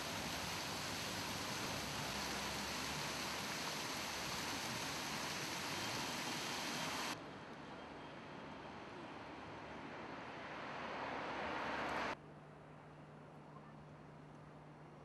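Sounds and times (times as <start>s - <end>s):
fountain water splashing: 0.0s - 7.2s
light street traffic: 0.0s - 15.0s.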